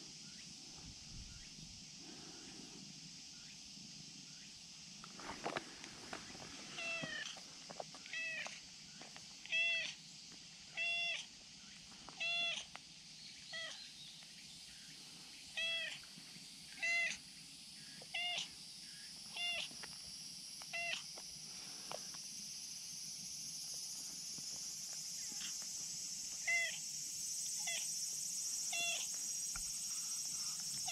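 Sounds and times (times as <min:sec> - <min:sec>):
cat meowing: 0:09.5 - 0:09.9, 0:12.2 - 0:12.6, 0:15.6 - 0:16.0, 0:16.8 - 0:17.2, 0:28.7 - 0:29.1.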